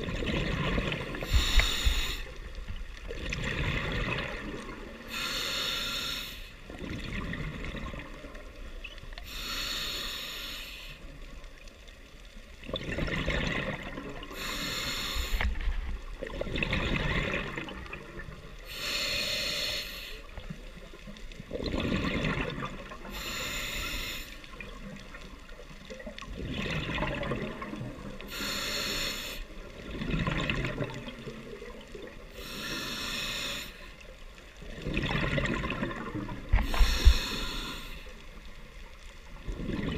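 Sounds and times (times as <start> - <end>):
exhaled bubbles gurgling: 0.0 - 5.2, 6.6 - 9.2, 12.5 - 19.6, 20.2 - 39.9
scuba regulator breathing: 1.2 - 2.5, 4.9 - 6.6, 9.2 - 11.1, 14.3 - 15.7, 18.6 - 20.4, 23.0 - 24.6, 28.2 - 29.8, 32.3 - 34.1, 36.5 - 38.4.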